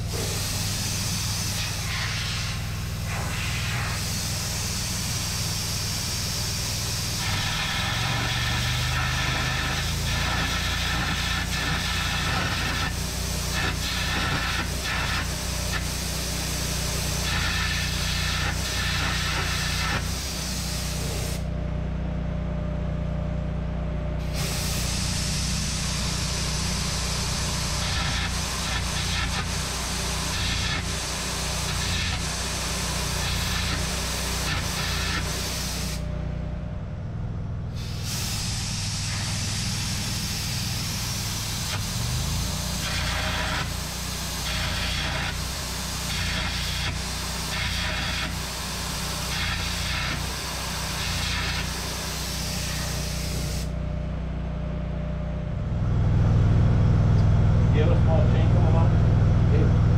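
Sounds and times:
hissing gouging blast with crackle: 0:00.0 - 0:21.5, 0:24.2 - 0:36.1, 0:37.8 - 0:53.7
low hum: 0:35.8 - 0:42.5, 0:53.1 - 0:59.9.

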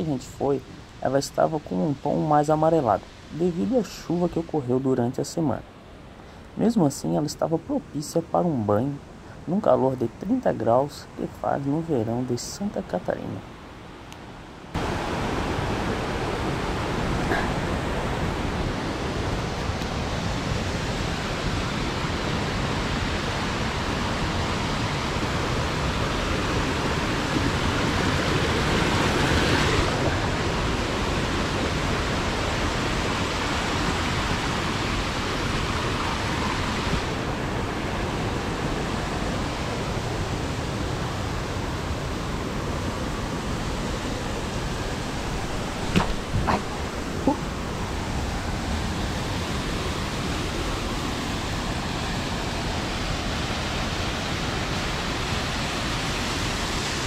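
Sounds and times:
waterfall rushing: 0:14.7 - 0:57.0.

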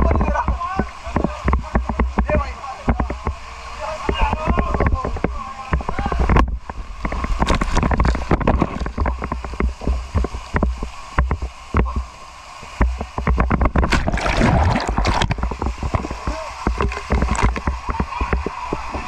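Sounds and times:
water rushing down slide: 0:12.0 - 0:19.0
splash into pool: 0:13.8 - 0:15.5.

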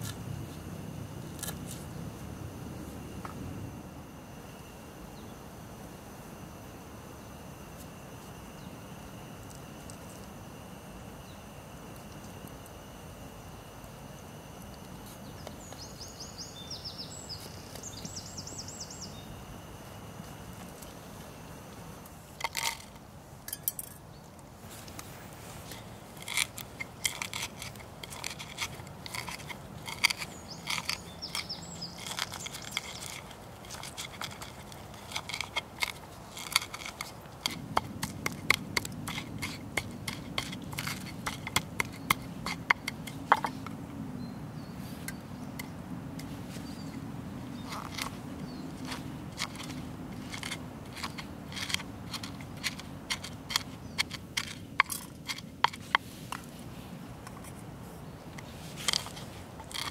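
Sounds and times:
steady low hum: 0:00.0 - 0:59.9
bird chirping: 0:15.2 - 0:19.5, 0:30.2 - 0:33.3.

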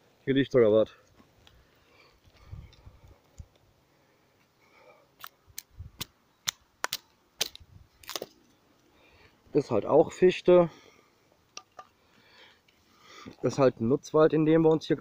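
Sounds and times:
wooden stick cracking under knife: 0:05.2 - 0:08.4.

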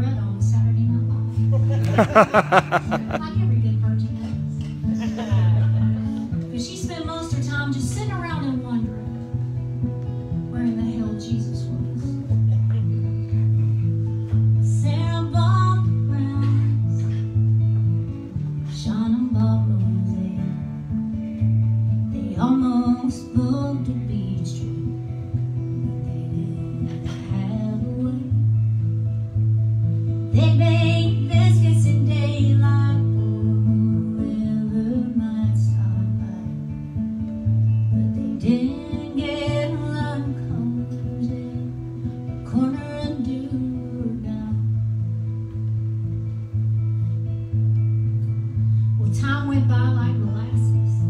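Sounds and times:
woman singing: 0:06.3 - 0:09.2, 0:10.5 - 0:12.3, 0:14.6 - 0:17.0, 0:18.6 - 0:20.7, 0:22.1 - 0:25.0, 0:25.8 - 0:28.4, 0:30.3 - 0:36.6, 0:38.0 - 0:41.8, 0:42.4 - 0:44.8, 0:49.0 - 0:51.0.

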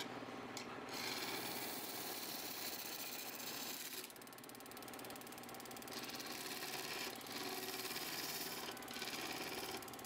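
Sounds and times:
wood lathe running: 0:00.9 - 0:04.1, 0:05.9 - 0:10.0
tool cutting spinning wood: 0:00.9 - 0:10.0.

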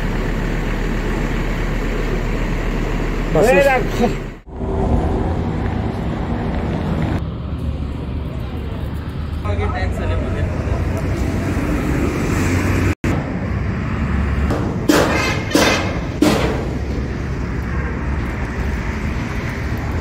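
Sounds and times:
low engine rumble: 0:00.0 - 0:20.0
sharp knocks: 0:14.5 - 0:16.9.

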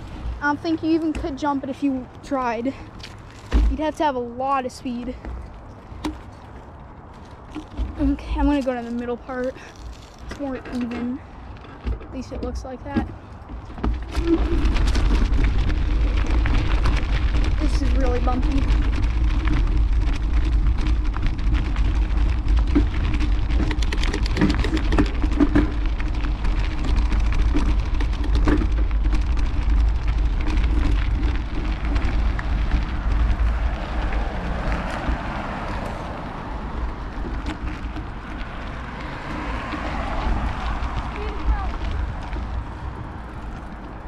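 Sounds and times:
low rumble: 0:00.0 - 0:01.3, 0:13.2 - 0:44.0
bike tyres crunching gravel: 0:00.0 - 0:44.0
stones and bike rattling: 0:00.0 - 0:44.0.

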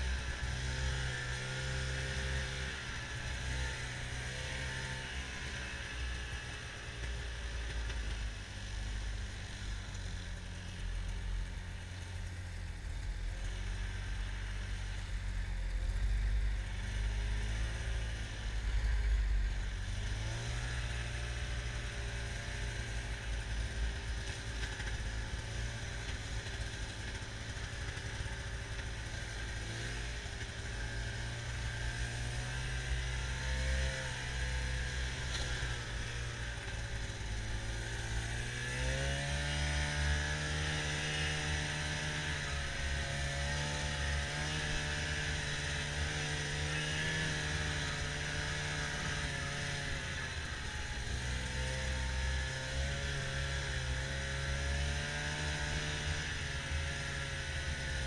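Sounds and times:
snowmobile engine running: 0:00.0 - 0:58.0.

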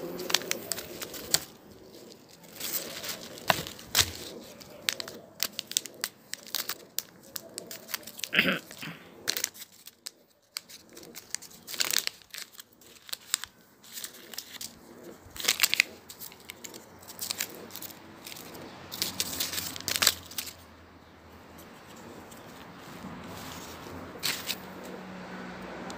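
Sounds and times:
wrapper crinkling and tearing: 0:00.0 - 0:20.7, 0:22.2 - 0:25.0.

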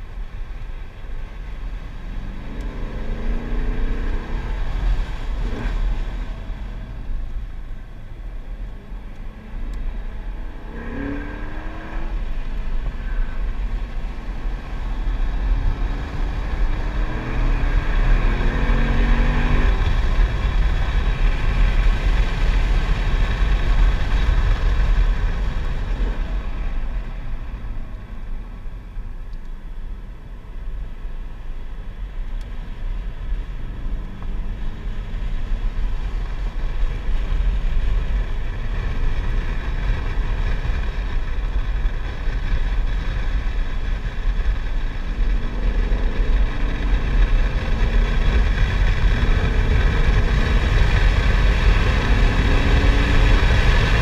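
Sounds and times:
car engine accelerating: 0:00.0 - 0:54.0
wind and road noise: 0:00.0 - 0:54.0.

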